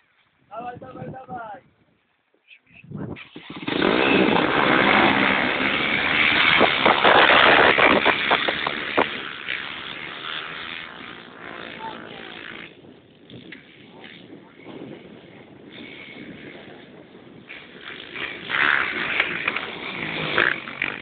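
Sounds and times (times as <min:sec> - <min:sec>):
racing engines revving: 0:03.4 - 0:14.8, 0:17.5 - 0:21.0.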